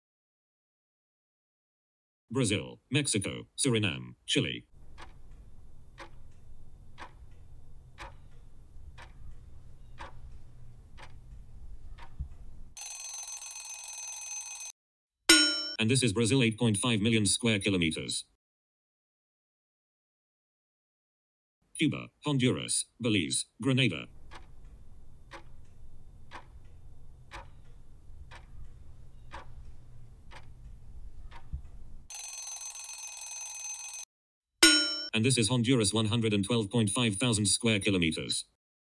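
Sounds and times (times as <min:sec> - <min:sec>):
low steady hum: 0:04.8 - 0:12.8, 0:24.0 - 0:32.1
timer clock ticking: 0:04.8 - 0:14.7, 0:23.8 - 0:34.0
many-toned ringing: 0:12.8 - 0:14.7, 0:15.3 - 0:15.8, 0:34.6 - 0:35.1.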